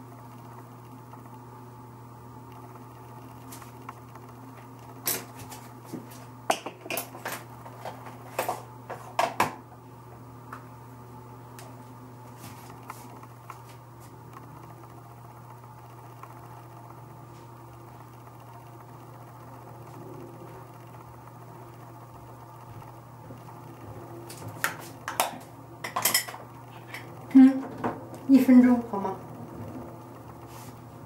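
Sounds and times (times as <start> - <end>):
low hum: 9.7 - 31.0.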